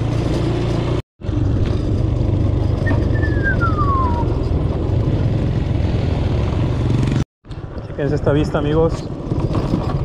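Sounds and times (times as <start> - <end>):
motorcycle engine cruising: 0.0 - 7.8
falling whistle: 2.8 - 4.4.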